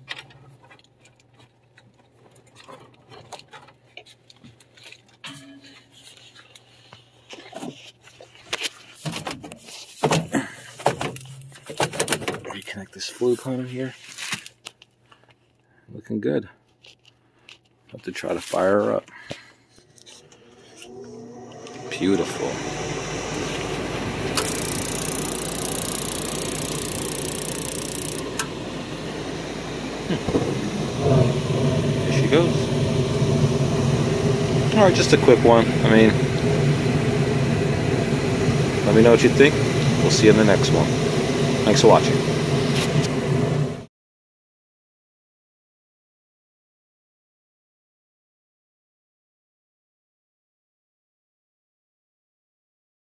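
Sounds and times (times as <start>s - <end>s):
furnace fan motor whirring: 19.8s - 43.9s
high hiss: 22.2s - 32.8s.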